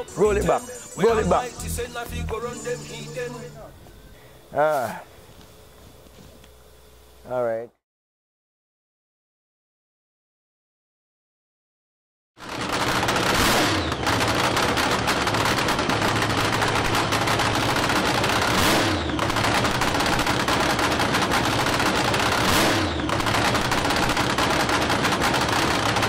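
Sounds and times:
dragster engine crackling and revving: 12.4 - 26.0.

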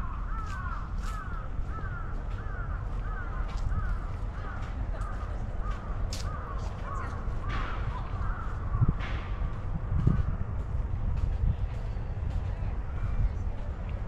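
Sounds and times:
crows cawing: 0.0 - 9.0.

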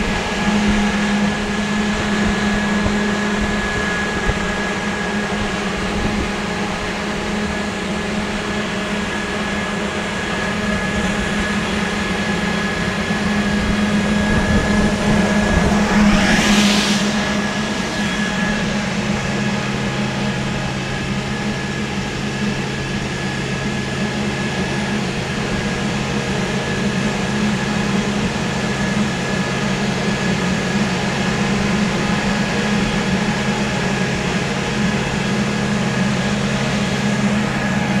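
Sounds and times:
vacuum machine hum: 0.0 - 38.0
rushing air suction: 13.2 - 21.2.

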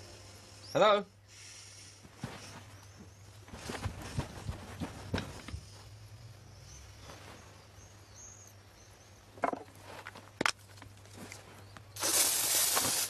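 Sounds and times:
loud hissing rush: 12.0 - 13.0.

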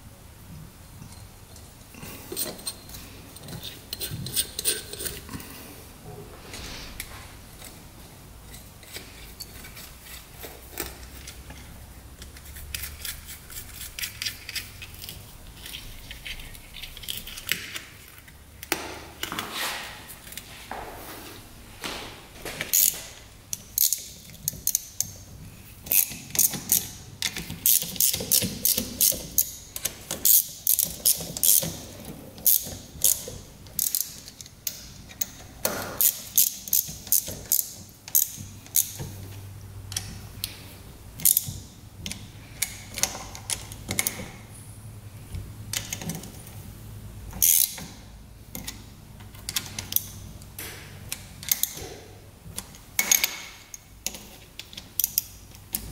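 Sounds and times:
hand ratchet clicking: 22.7 - 25.2, 25.8 - 35.4, 36.0 - 39.1, 47.4 - 47.9.

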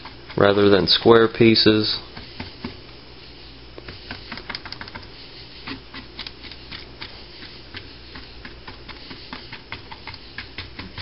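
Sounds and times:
low steady hum: 0.0 - 11.0
paint brush tapping: 3.8 - 11.0.

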